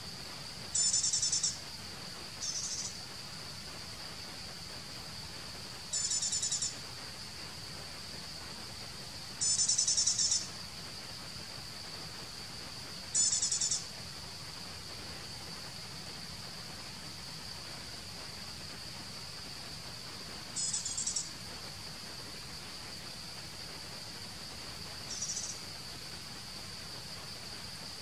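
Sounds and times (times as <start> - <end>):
high-pitched insect drone: 0.7 - 1.7, 2.4 - 3.0, 5.9 - 6.8, 9.4 - 10.6, 13.1 - 13.9, 20.6 - 21.3, 25.0 - 25.9.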